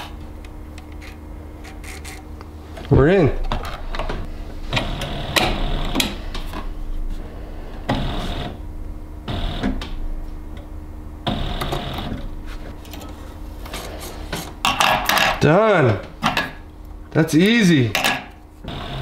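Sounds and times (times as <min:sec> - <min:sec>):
sewing machine running: 0:18.7 - 0:19.0.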